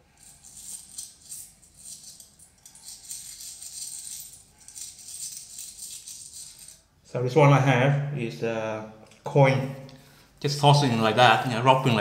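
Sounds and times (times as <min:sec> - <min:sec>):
coins jingling in a hand: 0:00.1 - 0:06.9.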